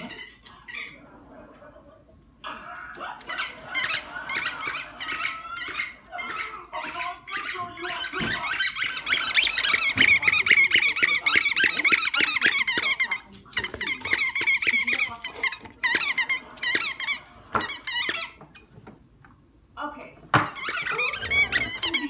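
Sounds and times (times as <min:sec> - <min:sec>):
squeaky ball being chomped: 0:03.2 - 0:18.5, 0:20.3 - 0:22.0.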